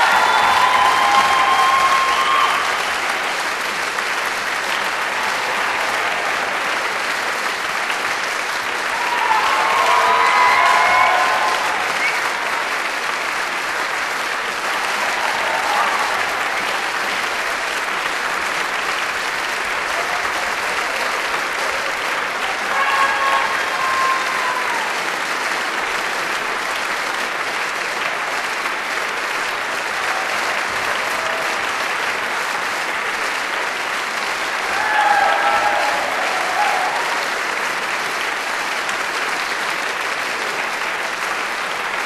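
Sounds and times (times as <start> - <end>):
brief cheers: 0.0 - 3.2, 8.8 - 12.6, 14.7 - 16.9, 22.4 - 25.1, 34.6 - 37.4
audience applauding: 0.0 - 42.0.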